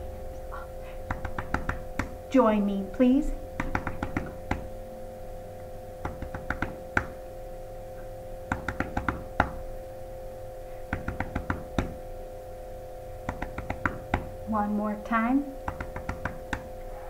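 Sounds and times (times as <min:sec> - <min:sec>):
faint steady hum: 0:00.0 - 0:17.0
hands patting chest: 0:01.0 - 0:02.2, 0:03.6 - 0:04.7, 0:06.0 - 0:07.2, 0:08.5 - 0:09.6, 0:10.9 - 0:12.0, 0:13.3 - 0:14.4, 0:15.7 - 0:16.7.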